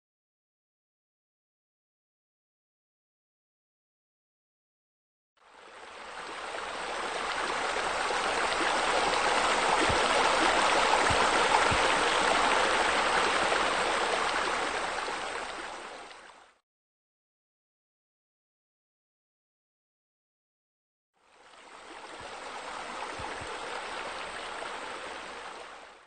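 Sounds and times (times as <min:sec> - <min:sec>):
waterfall pouring into pool: 0:05.7 - 0:16.3.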